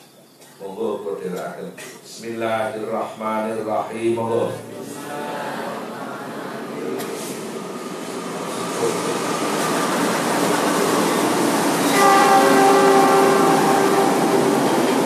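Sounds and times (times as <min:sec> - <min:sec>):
train rumbling past: 0:05.7 - 0:15.0
train horn chord: 0:11.8 - 0:15.0.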